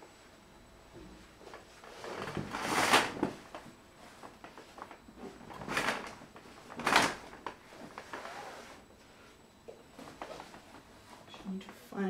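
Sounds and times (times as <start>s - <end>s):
curtains sliding along track: 2.0s - 3.2s, 7.9s - 8.8s.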